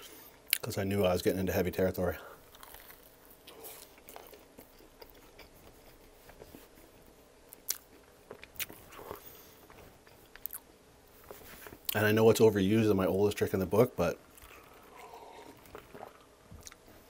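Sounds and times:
close chewing mouth noise: 0:02.4 - 0:06.6, 0:07.5 - 0:10.7, 0:14.3 - 0:16.9.

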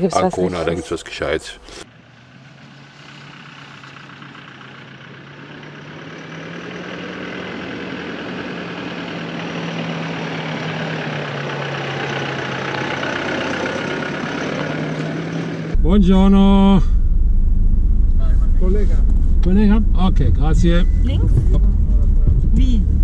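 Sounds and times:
pickup truck engine approaching: 0:00.5 - 0:23.0.

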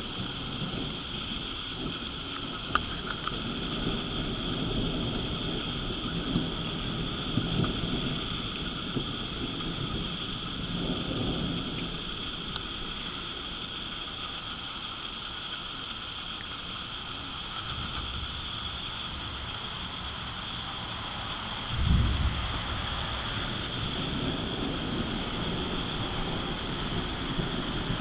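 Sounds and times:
distant thunder rumbling: 0:00.0 - 0:14.4, 0:17.3 - 0:28.0
steady background noise: 0:00.0 - 0:28.0.

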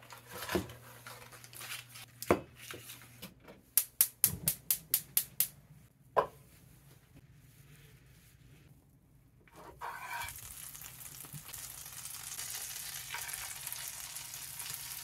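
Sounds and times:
plastic package rustling: 0:00.0 - 0:02.1.

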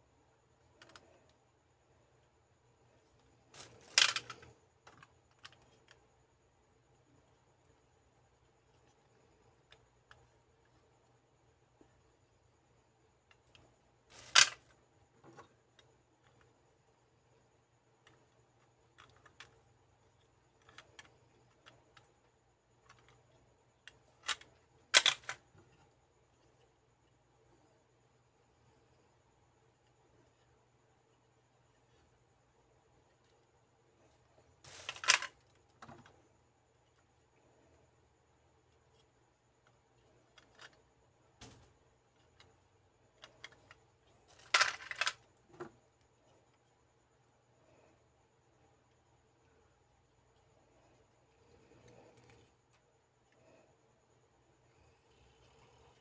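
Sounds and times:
plastic clattering on plastic: 0:03.5 - 0:05.9, 0:23.9 - 0:25.7, 0:34.7 - 0:36.2, 0:43.2 - 0:45.8
plastic capsules clicking: 0:03.6 - 0:05.7, 0:23.9 - 0:25.5, 0:34.7 - 0:35.4, 0:43.2 - 0:45.3.

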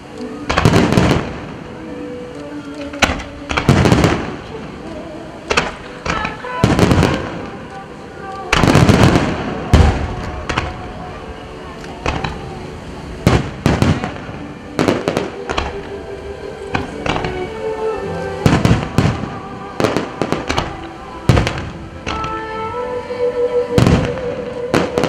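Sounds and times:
music with sustained notes: 0:00.0 - 0:25.0
fireworks bangs: 0:00.4 - 0:01.9, 0:03.0 - 0:04.9, 0:05.5 - 0:11.2, 0:11.8 - 0:16.0, 0:16.7 - 0:17.6, 0:18.3 - 0:22.6, 0:23.7 - 0:25.0.

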